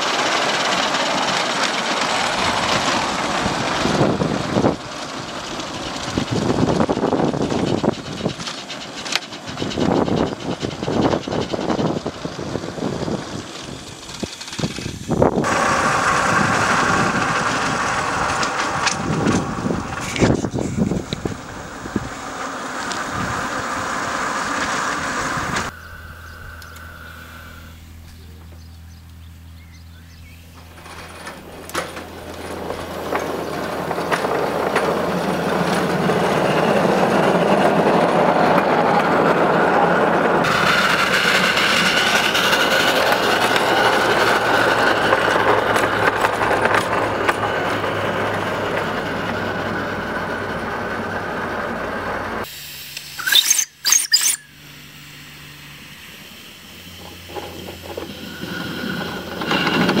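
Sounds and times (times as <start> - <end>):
miniature steam locomotive running: 0.0 - 29.4, 30.1 - 60.0
high squeal: 19.4 - 34.0, 52.4 - 59.9.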